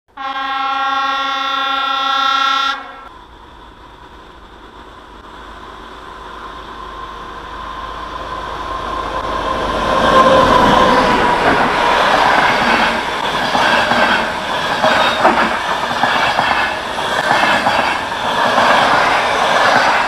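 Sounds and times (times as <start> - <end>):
train horn blast: 0.1 - 3.1
train approaching rumble: 1.6 - 20.0.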